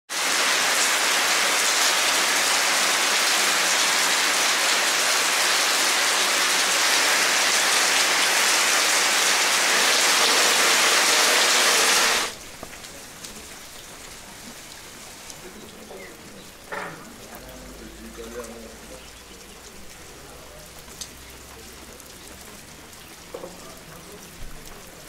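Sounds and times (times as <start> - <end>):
heavy rain on tiles: 0.1 - 25.0
water dripping: 11.7 - 25.0.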